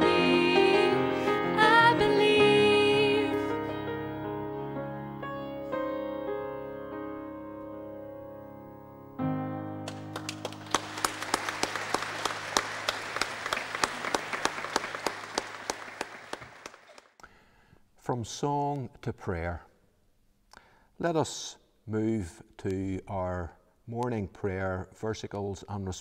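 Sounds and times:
grand piano chords: 0:00.0 - 0:15.5
congregation clapping: 0:09.8 - 0:17.2.

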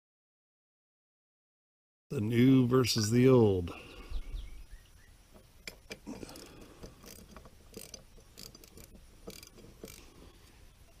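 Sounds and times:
socket ratchet clicking: 0:05.7 - 0:10.1.

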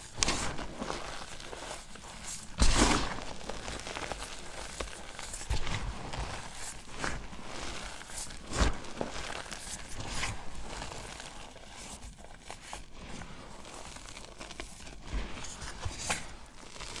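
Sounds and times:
feet crunching chalk: 0:00.0 - 0:13.3.

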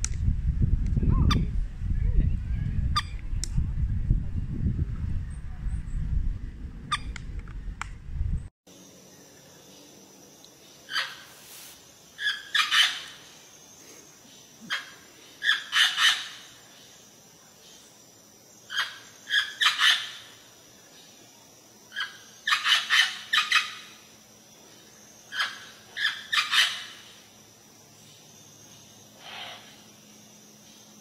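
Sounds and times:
parrot harsh calls: 0:12.2 - 0:13.2, 0:14.7 - 0:16.5, 0:18.7 - 0:20.3, 0:22.0 - 0:23.9, 0:25.3 - 0:27.1.

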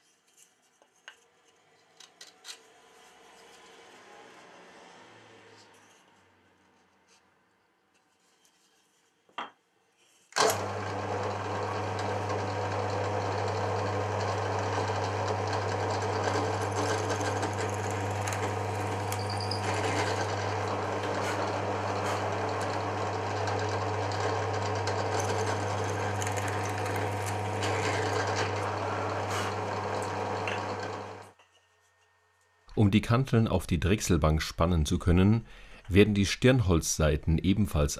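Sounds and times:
drill bit drilling into wood: 0:10.4 - 0:31.3
drill press motor humming: 0:10.4 - 0:31.3.

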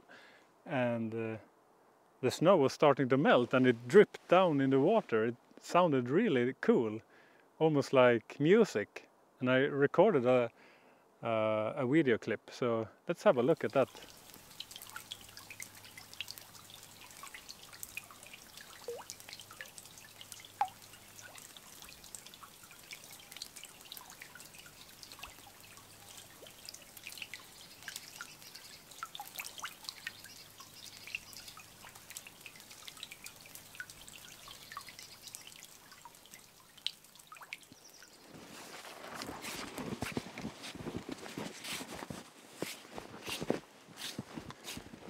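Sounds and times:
water drips plinking: 0:13.4 - 0:38.2.

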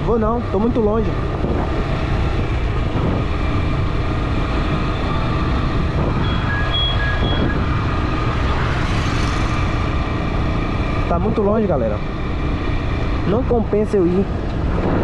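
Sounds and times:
motorcycle engine: 0:00.0 - 0:15.0
short electronic beeps: 0:06.2 - 0:07.7.

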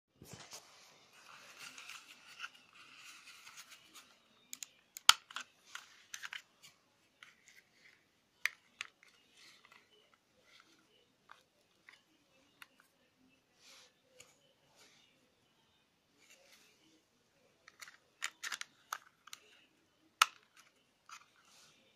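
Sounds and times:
plastic mouse clicks: 0:04.5 - 0:06.4, 0:17.7 - 0:19.6, 0:20.2 - 0:21.3.

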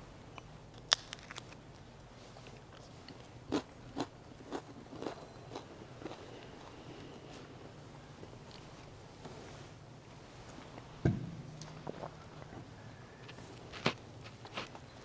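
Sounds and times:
person chewing wafer: 0:00.8 - 0:07.2, 0:13.2 - 0:14.8.

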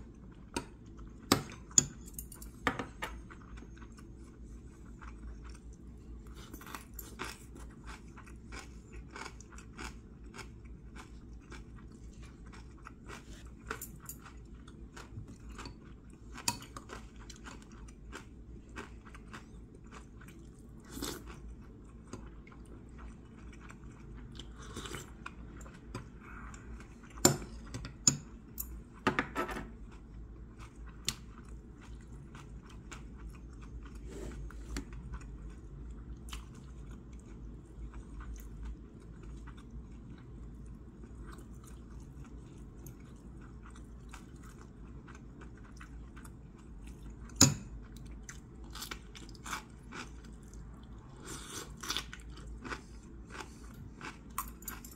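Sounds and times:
person chewing: 0:00.0 - 0:29.0, 0:29.8 - 0:54.9.

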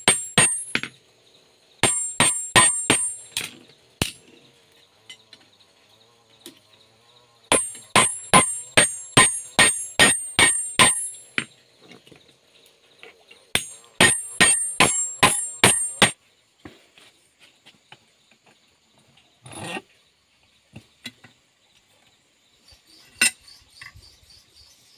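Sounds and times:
hammer ringing on anvil: 0:01.8 - 0:03.3, 0:07.5 - 0:11.2, 0:13.6 - 0:16.2.

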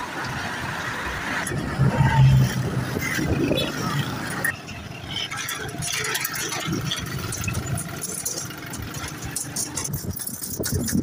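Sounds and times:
motorcycle engine rattling: 0:02.4 - 0:11.0.

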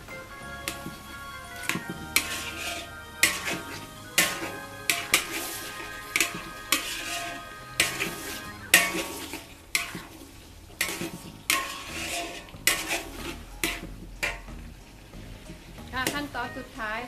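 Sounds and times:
metal spatula scraping a wok: 0:02.2 - 0:05.6, 0:06.2 - 0:10.1, 0:10.8 - 0:14.4.

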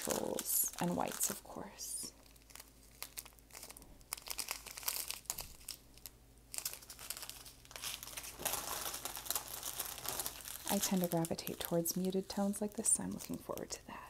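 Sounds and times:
plastic packets crinkling: 0:00.0 - 0:13.8.

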